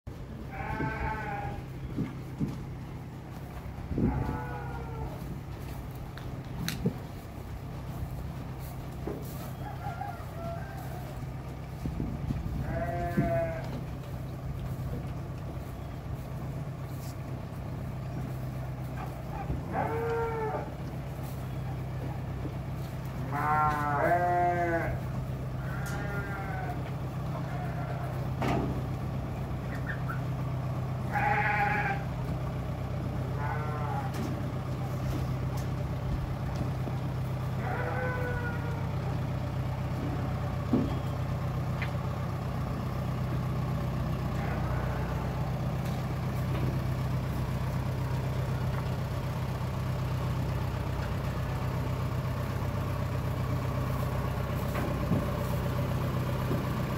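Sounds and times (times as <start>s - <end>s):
low mechanical hum: 0.1s - 56.9s
cattle bawling: 19.0s - 20.7s, 23.2s - 25.0s, 33.4s - 34.2s, 37.6s - 39.0s, 44.4s - 45.4s.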